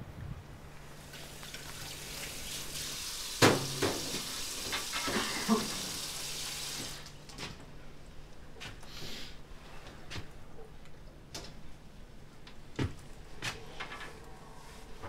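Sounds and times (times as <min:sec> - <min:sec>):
tap running into a sink: 0:03.4 - 0:05.8.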